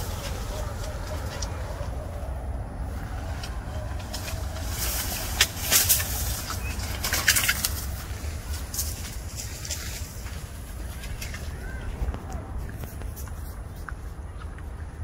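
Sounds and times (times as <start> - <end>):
palm fronds rustling: 0.0 - 13.8.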